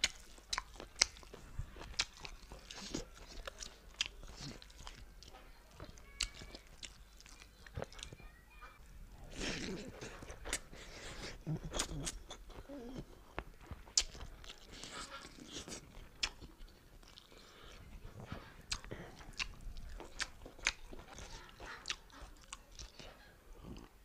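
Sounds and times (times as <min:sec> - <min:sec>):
wet mouth clicks and smacks: 0:00.0 - 0:02.9, 0:13.3 - 0:14.3, 0:15.7 - 0:16.6, 0:18.7 - 0:22.2
close chewing food: 0:00.0 - 0:08.4, 0:09.2 - 0:24.0.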